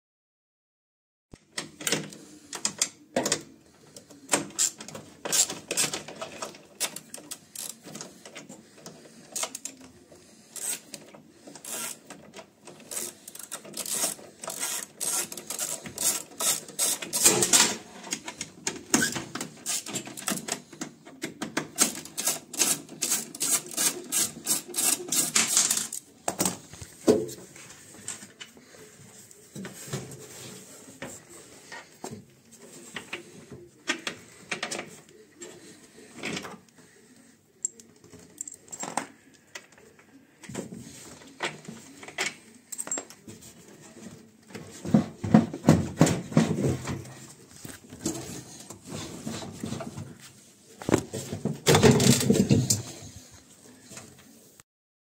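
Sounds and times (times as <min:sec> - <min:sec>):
hand tools clicking on metal: 0:12.7 - 0:17.6.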